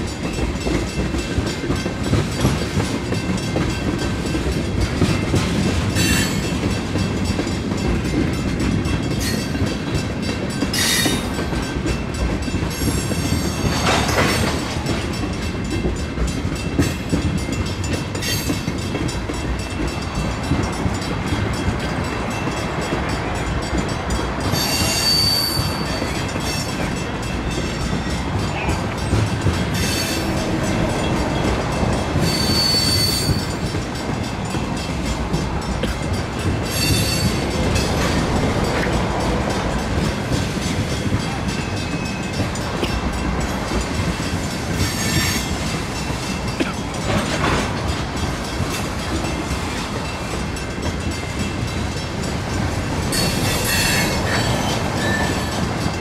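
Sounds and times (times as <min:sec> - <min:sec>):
train wheels rumbling on rails: 0:00.0 - 0:56.0
high-pitched wheel squeals: 0:24.6 - 0:26.6, 0:32.2 - 0:33.5, 0:53.1 - 0:55.6.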